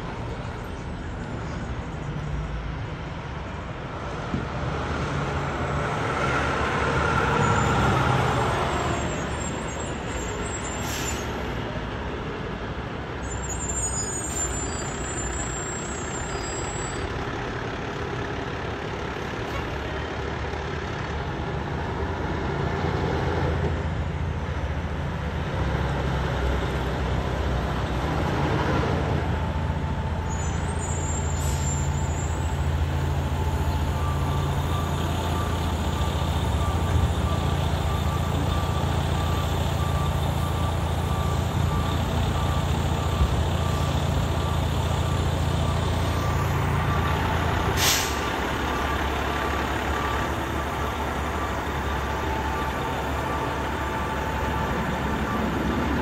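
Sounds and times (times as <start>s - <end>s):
diesel truck engine hum: 0.0s - 56.0s
street traffic: 0.0s - 56.0s
short air hiss: 47.8s - 48.3s.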